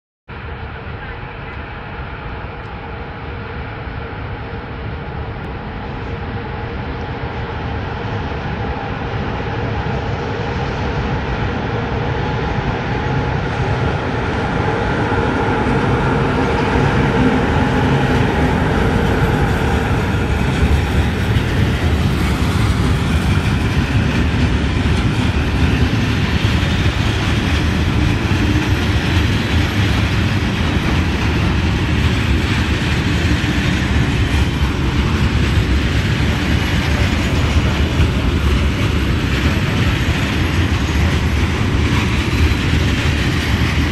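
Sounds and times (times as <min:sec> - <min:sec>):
electric locomotive humming: 0:00.3 - 0:43.9
train wheels clattering over rail joints: 0:17.7 - 0:43.9.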